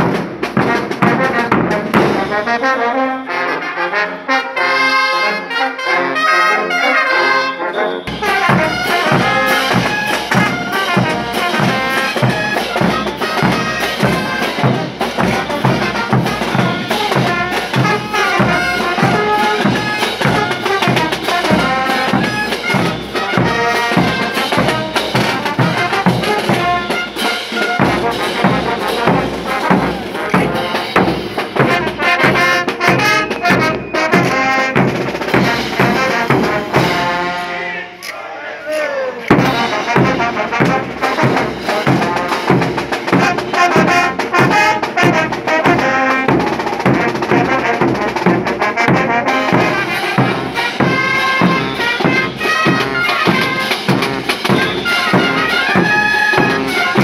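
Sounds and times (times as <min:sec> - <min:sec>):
brass band playing: 0:00.0 - 0:57.0
bass drum thumps: 0:39.3 - 0:42.8.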